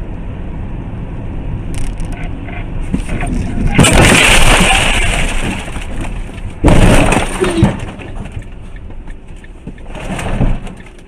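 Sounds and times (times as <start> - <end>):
car crash impact: 2.9 - 8.4.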